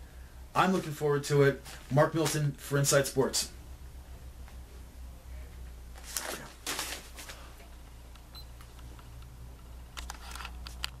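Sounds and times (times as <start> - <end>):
low room hum: 0.0 - 11.0
soft rustles of movement: 5.4 - 7.9.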